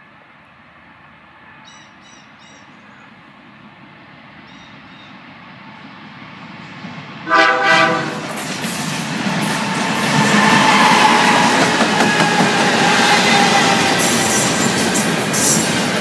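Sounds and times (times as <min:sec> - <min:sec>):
freight train rumble: 0:00.0 - 0:16.0
bird chirps: 0:01.6 - 0:03.1, 0:04.5 - 0:05.2
locomotive horn blast: 0:07.2 - 0:08.4.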